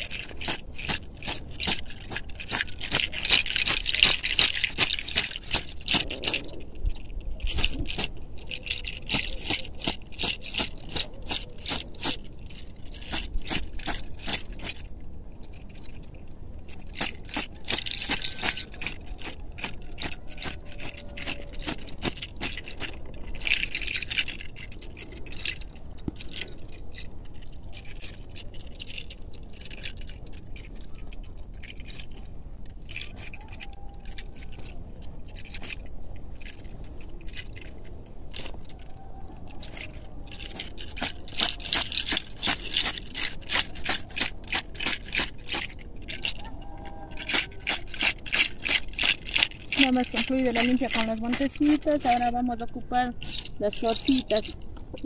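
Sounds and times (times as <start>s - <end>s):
leafy herbs rustling and slapping: 7.4s - 14.8s, 39.5s - 55.0s.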